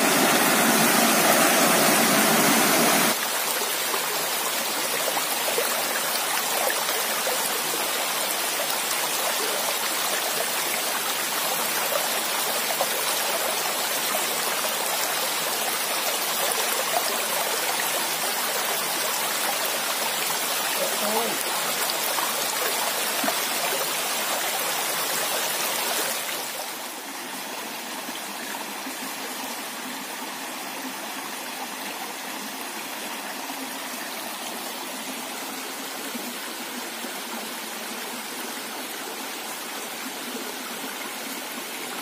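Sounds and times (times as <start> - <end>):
stream running over rocks: 0.0 - 42.0.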